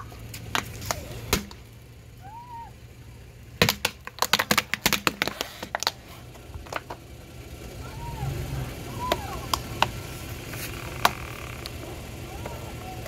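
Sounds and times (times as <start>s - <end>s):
plastic cracking under car tyre: 3.6s - 6.0s.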